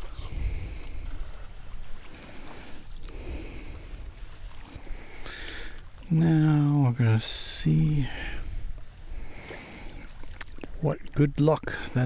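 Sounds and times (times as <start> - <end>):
water lapping and splashing: 8.4 - 12.0.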